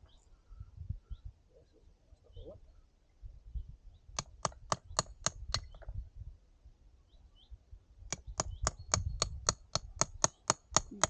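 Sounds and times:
hammer tapping stone: 8.1s - 11.0s.

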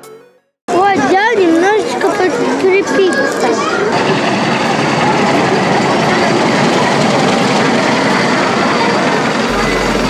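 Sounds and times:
ride mechanical running noise: 4.0s - 10.0s.

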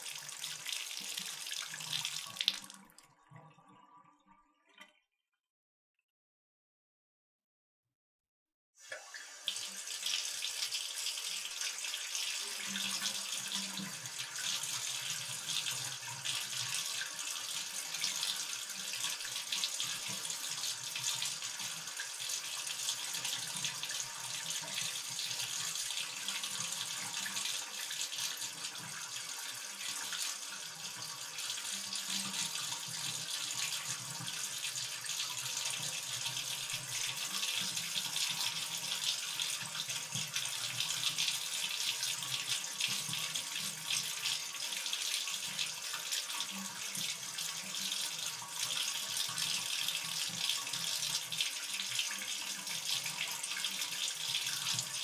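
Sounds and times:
water pouring into a bathtub: 0.0s - 4.9s, 8.8s - 55.0s.

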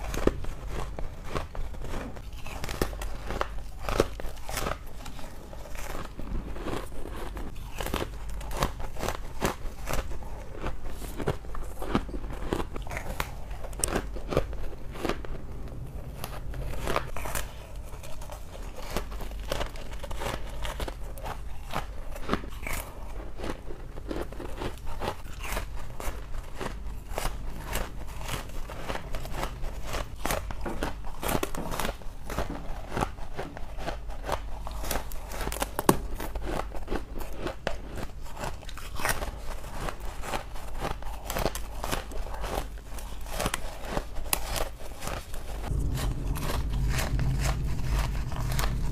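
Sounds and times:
frost crunching being chewed: 0.0s - 48.9s.

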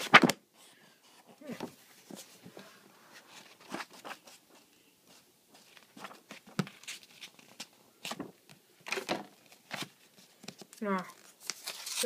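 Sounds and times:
book pages turning: 3.1s - 12.0s.

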